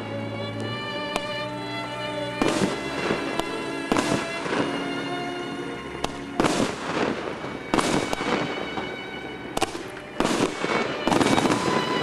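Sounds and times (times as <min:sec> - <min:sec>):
firework shots banging: 0:02.4 - 0:05.0, 0:06.0 - 0:12.0.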